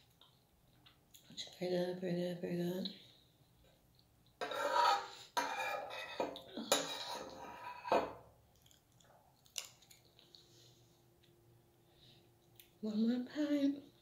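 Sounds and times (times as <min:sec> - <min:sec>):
spoon scraping ceramic bowl: 0:04.4 - 0:08.2.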